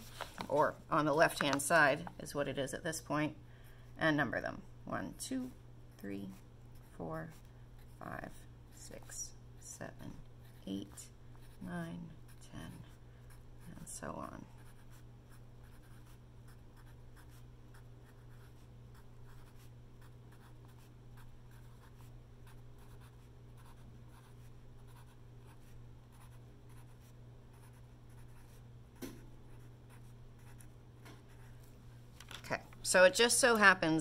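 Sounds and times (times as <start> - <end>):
steady low hum: 0.0 - 34.0
pencil scratching on paper: 14.6 - 15.0, 15.6 - 28.6.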